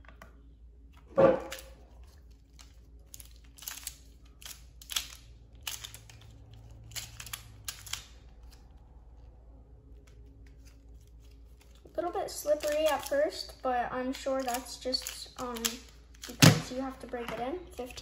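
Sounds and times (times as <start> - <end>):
puzzle cube plastic clicks: 2.5 - 8.6, 12.5 - 13.2, 14.4 - 16.6.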